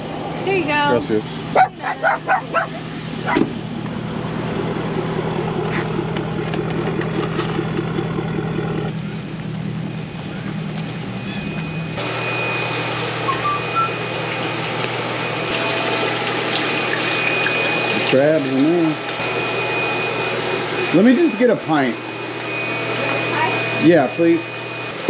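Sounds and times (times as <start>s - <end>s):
pickup truck engine idling: 1.0s - 12.1s
bait tank pumps hissing: 13.0s - 19.2s.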